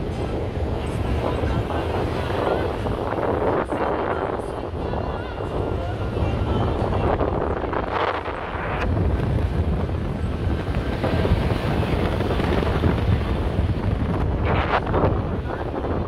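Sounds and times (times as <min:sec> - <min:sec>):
vehicles driving on sand: 0:00.0 - 0:16.0
wind buffeting microphone: 0:00.0 - 0:16.0.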